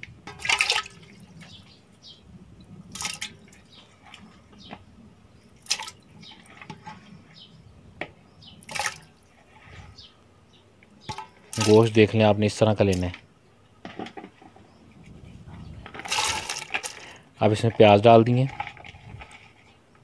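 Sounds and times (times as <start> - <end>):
meat splashing into water in a pot: 0.3 - 1.2.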